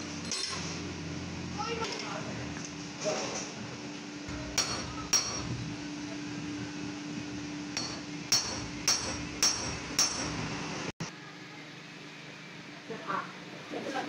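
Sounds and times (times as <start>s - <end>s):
steady low hum: 0.0s - 14.0s
hammer striking metal: 4.3s - 5.6s, 7.7s - 10.5s.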